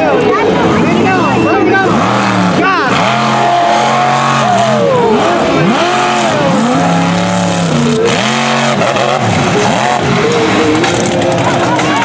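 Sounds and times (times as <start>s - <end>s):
truck engine revving hard: 0.0s - 12.0s.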